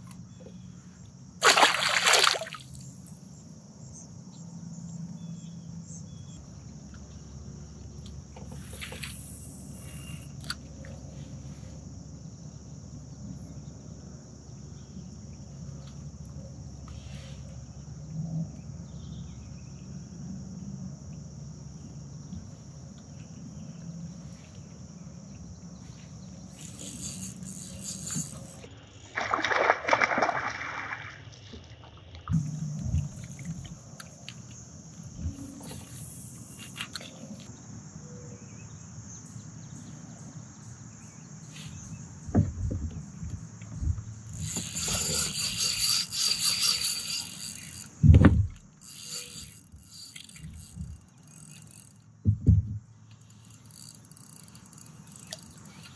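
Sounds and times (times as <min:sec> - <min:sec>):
insects chirring: 0:00.0 - 0:55.9
quiet river ambience: 0:00.0 - 0:55.9
loud water splashing: 0:01.4 - 0:02.7, 0:29.1 - 0:31.4.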